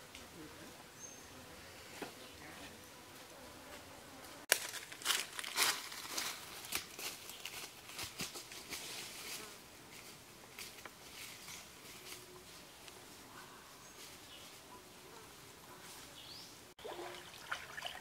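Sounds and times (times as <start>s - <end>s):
brushing past undergrowth: 3.7s - 14.8s
footsteps crunching dry leaves: 4.5s - 12.2s.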